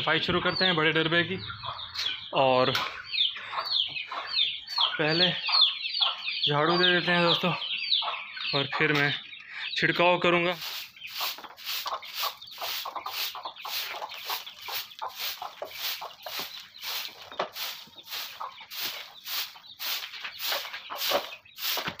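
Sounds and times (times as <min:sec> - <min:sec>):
broom sweeping concrete floor: 0:10.5 - 0:22.0.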